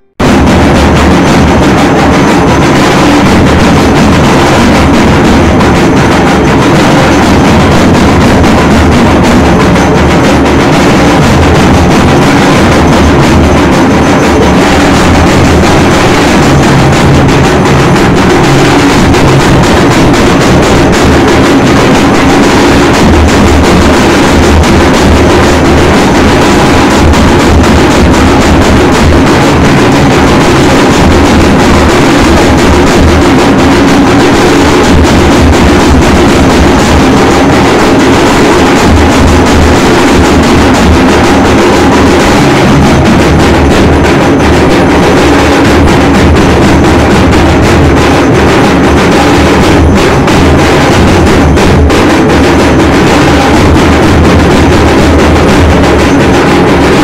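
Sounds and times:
drumming and percussion: 0:00.0 - 0:57.0
heavy low drum beat: 0:00.0 - 0:57.0.

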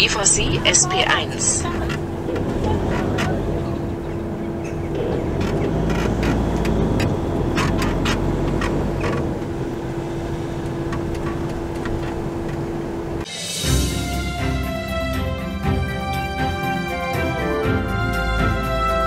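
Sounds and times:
constant hum: 0:00.0 - 0:13.3
van engine and road rumble: 0:00.0 - 0:13.3
music: 0:13.2 - 0:19.0.

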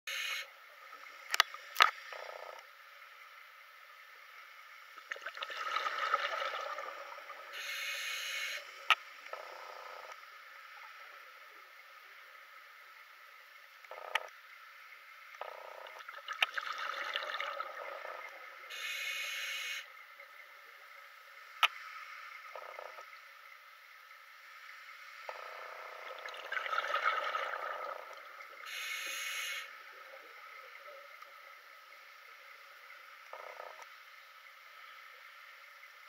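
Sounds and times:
hissing regulator inhalation: 0:07.6 - 0:08.7, 0:18.7 - 0:19.8, 0:28.7 - 0:29.7
bubbling underwater exhalation: 0:25.8 - 0:28.2.

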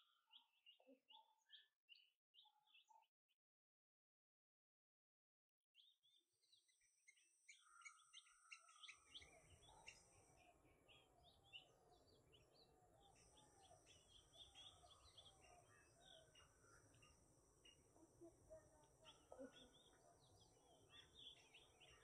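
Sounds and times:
birds chirping: 0:05.8 - 0:22.0.

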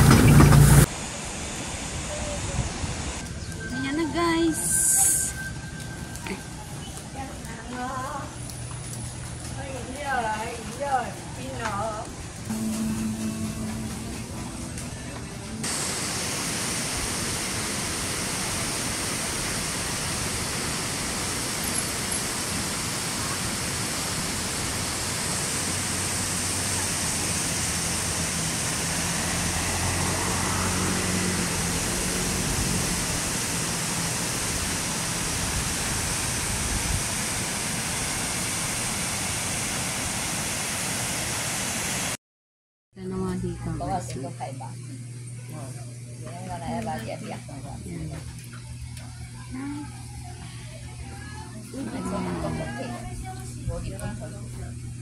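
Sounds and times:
waterfall rushing: 0:15.6 - 0:42.2.

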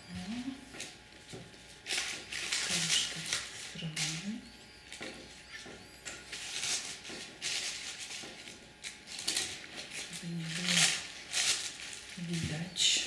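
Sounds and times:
dried grass and paper rustling: 0:01.6 - 0:04.2, 0:06.3 - 0:12.8.

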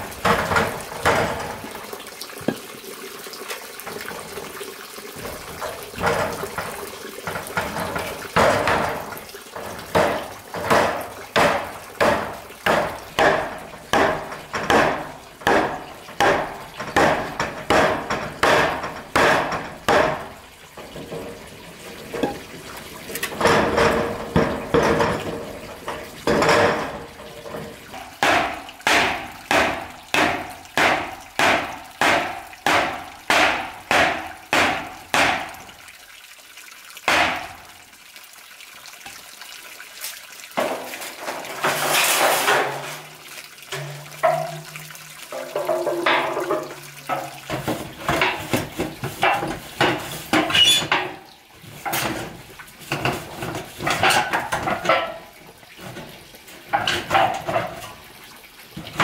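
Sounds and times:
knocks: 0:07.3 - 0:21.3
sheet metal clattering: 0:23.2 - 0:28.1, 0:40.6 - 0:51.2.

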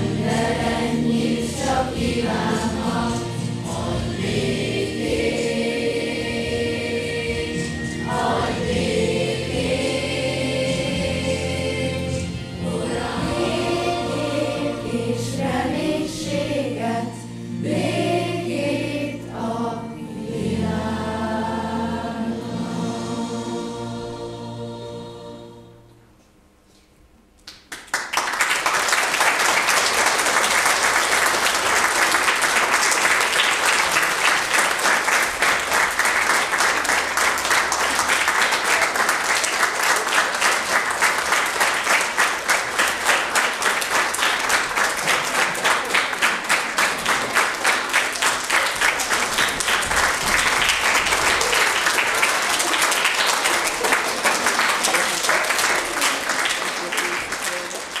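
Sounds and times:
children applauding: 0:27.5 - 0:58.0.

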